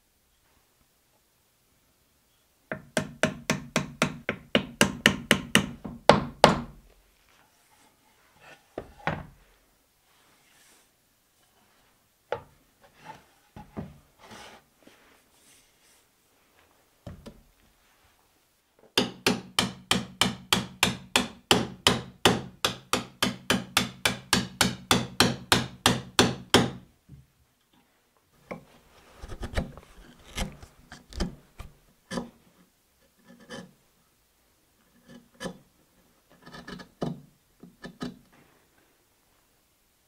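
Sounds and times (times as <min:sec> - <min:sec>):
chisel paring wood: 0:02.7 - 0:06.8, 0:19.0 - 0:26.8, 0:36.4 - 0:38.2.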